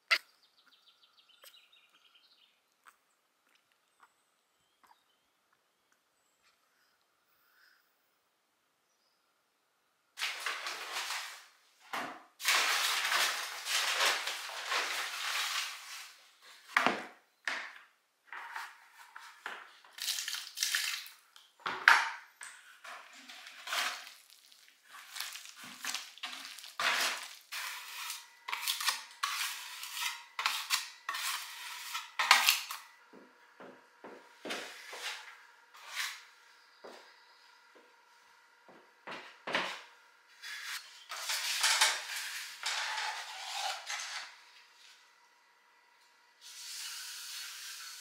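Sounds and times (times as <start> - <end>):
scoop scraping plastic bucket: 10.2 - 11.5, 12.4 - 16.2, 22.8 - 32.8, 40.4 - 44.3
paper sack rustling: 10.2 - 11.6, 12.4 - 16.7.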